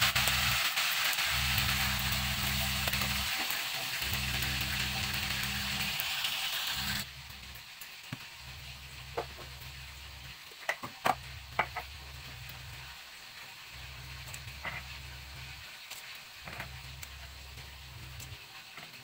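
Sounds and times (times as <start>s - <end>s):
low steady hum: 11.1s - 13.0s, 16.4s - 18.4s.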